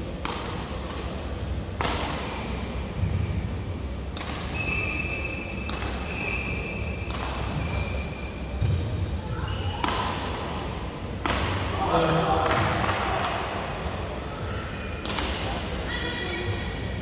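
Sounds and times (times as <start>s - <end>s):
rackets hitting shuttlecock: 0.2s - 2.4s, 4.0s - 4.8s, 5.6s - 7.7s, 9.7s - 11.8s, 12.4s - 13.5s, 15.0s - 15.6s.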